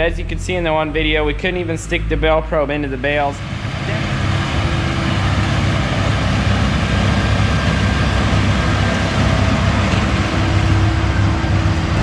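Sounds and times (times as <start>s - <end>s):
tractor engine running: 2.8s - 12.0s.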